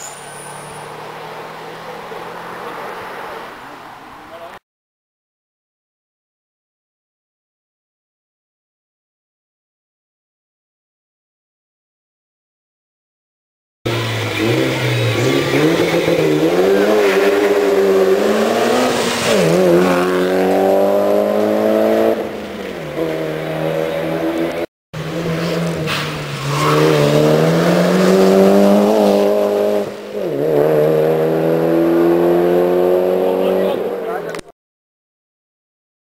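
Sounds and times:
race car engine accelerating: 0:13.9 - 0:34.4.

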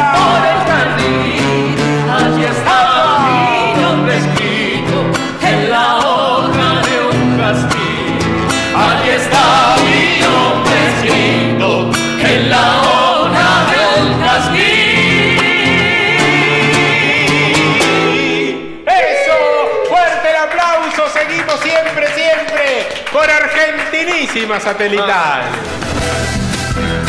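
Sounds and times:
woman and man singing: 0:00.0 - 0:18.7
acoustic guitar strumming: 0:00.0 - 0:18.8
voices singing along: 0:00.0 - 0:20.0.

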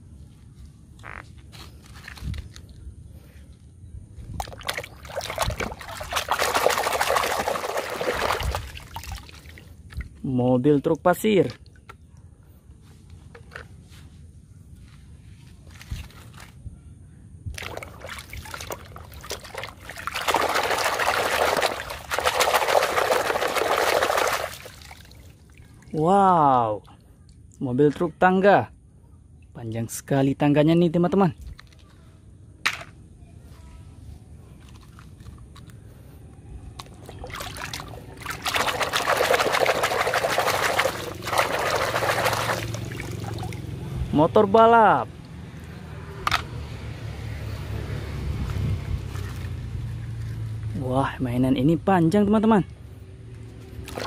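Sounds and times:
water sloshing in a bucket: 0:04.3 - 0:10.2, 0:17.5 - 0:27.4, 0:34.6 - 0:36.0, 0:36.6 - 0:44.0, 0:53.7 - 0:54.0.

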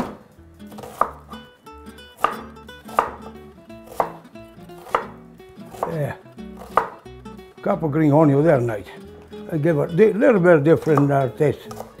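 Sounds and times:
knife chopping on cutting board: 0:00.0 - 0:01.5, 0:02.1 - 0:07.0, 0:10.7 - 0:12.0.

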